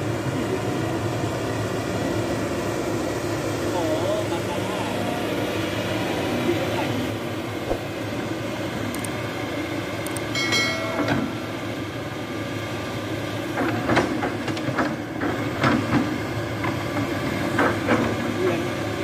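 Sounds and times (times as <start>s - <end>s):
excavator diesel engine: 0.0s - 19.0s.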